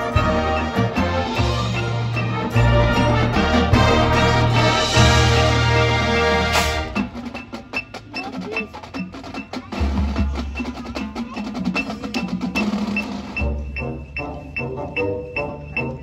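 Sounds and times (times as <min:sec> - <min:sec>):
marching band chord: 0:00.0 - 0:07.4.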